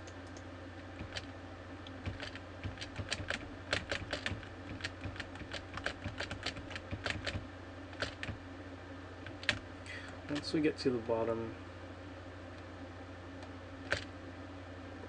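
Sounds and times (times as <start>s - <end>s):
keyboard keys clicking: 2.0s - 7.4s.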